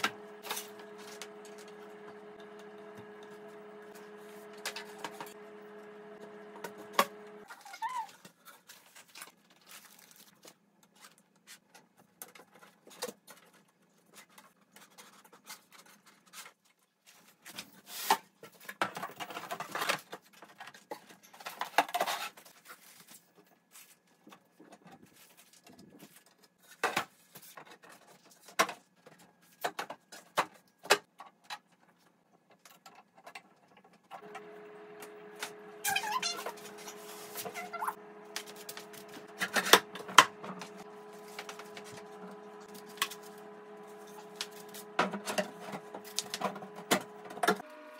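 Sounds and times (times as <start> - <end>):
scraping and rustling: 35.2 - 47.6.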